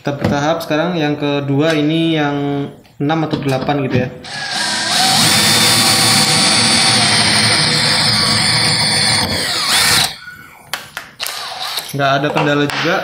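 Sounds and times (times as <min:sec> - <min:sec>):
cordless drill boring through steel: 0:04.3 - 0:10.2.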